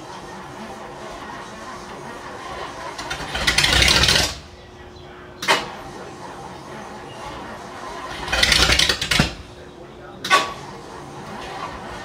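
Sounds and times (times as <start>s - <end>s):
car engine cranking and firing: 2.5s - 4.5s, 7.9s - 9.6s.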